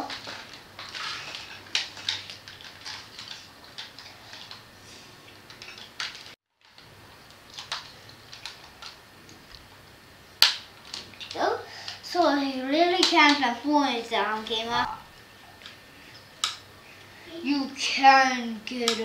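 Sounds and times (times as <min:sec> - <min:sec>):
plastic toy parts clicking: 0:18.8 - 0:19.0.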